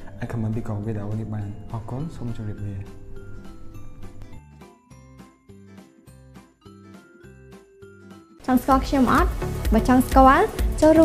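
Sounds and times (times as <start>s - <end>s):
music with steady beat: 0.0s - 11.0s.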